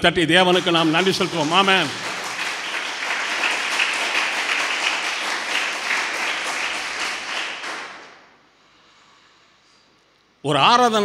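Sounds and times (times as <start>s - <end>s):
congregation clapping: 0.2s - 8.4s.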